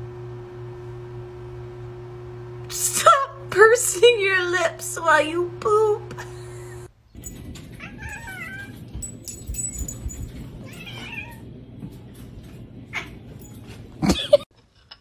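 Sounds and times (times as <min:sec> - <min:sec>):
cat meowing: 0:07.8 - 0:08.8, 0:10.6 - 0:11.5.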